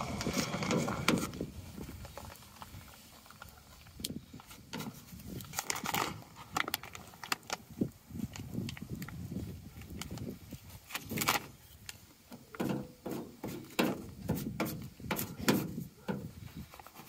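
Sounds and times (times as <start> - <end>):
plastic squeegee scraping: 0.0 - 3.8
paper crinkling: 0.0 - 12.0.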